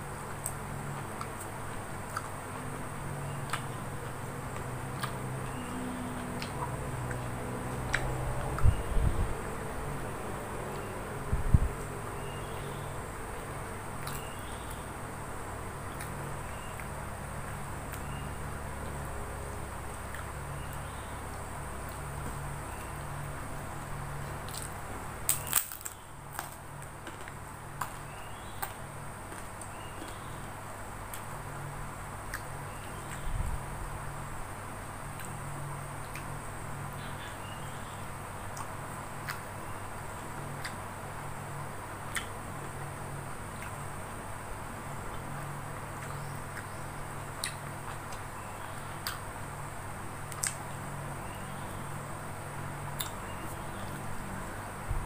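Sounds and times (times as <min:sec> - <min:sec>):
steady low hum: 0:00.0 - 0:55.0
cracker snapping and crunching: 0:24.3 - 0:30.2.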